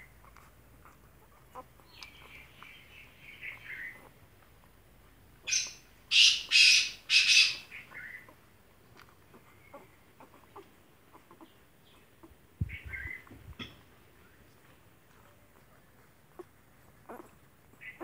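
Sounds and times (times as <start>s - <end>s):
harsh bird calls: 5.4s - 8.3s.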